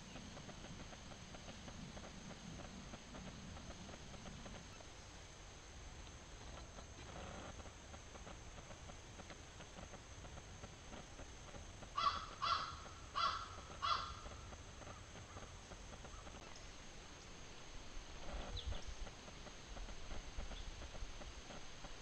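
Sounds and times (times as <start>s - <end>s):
bird calling: 11.9s - 16.8s.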